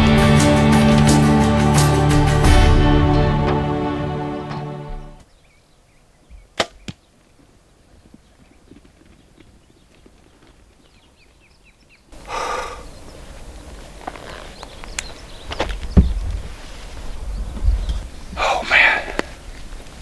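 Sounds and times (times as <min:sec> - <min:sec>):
rustling noise: 0:13.1 - 0:18.3.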